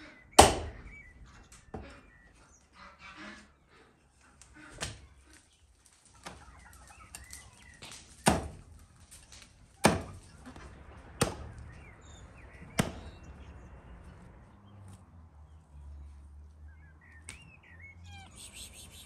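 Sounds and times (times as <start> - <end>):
cleaver chopping on wooden block: 0.4 - 0.8, 8.2 - 8.5.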